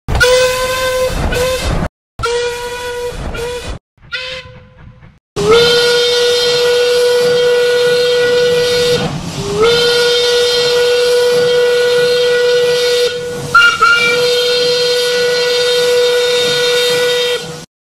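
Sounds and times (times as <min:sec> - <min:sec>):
steam locomotive whistle: 0:00.1 - 0:17.7
steam hissing: 0:05.5 - 0:17.6.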